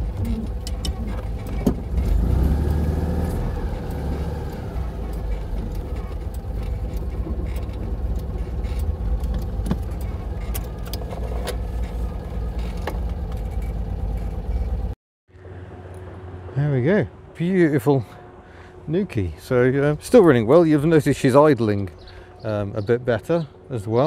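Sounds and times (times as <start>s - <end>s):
light rattles and clicks: 0.0s - 15.0s
small car engine running: 0.0s - 16.4s.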